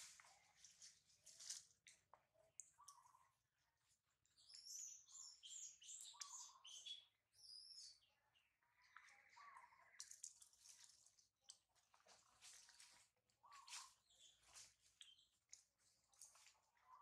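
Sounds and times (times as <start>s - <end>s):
faint bird chirps: 2.4s - 3.4s, 4.3s - 10.2s, 13.4s - 15.5s, 16.2s - 17.0s
bird trill: 2.8s - 3.3s, 4.5s - 8.0s.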